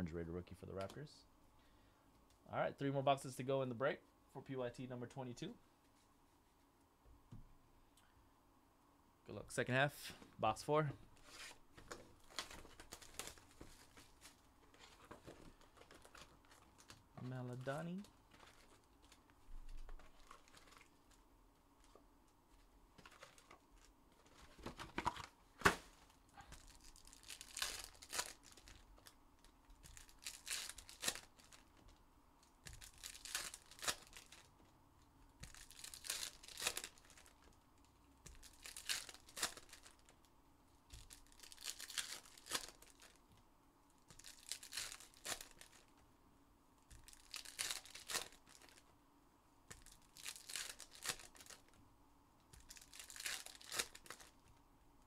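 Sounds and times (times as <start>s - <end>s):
foil wrappers tearing and crinkling: 12.2s - 17.0s, 20.0s - 21.0s, 26.5s - 31.8s, 32.6s - 34.5s, 35.4s - 37.6s, 38.2s - 40.2s, 40.9s - 43.2s, 44.1s - 45.9s, 46.9s - 48.8s, 49.7s - 51.8s, 52.5s - 54.4s.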